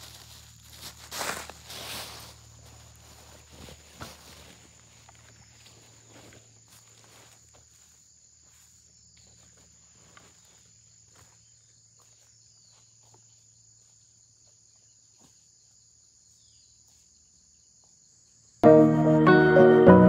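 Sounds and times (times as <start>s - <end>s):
footsteps on pine needles: 0.0s - 13.3s
high insect drone: 0.0s - 18.6s.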